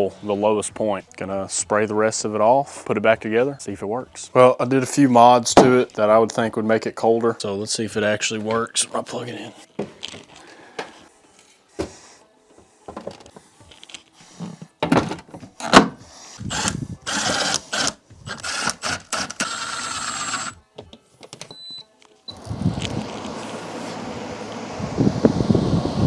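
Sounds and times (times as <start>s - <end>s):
plastic knocks and clunks: 14.8s - 16.0s.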